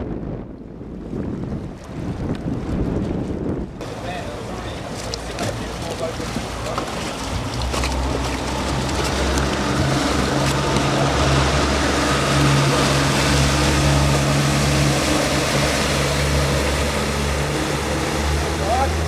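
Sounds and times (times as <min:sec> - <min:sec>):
outboard motors droning: 0:03.8 - 0:19.0.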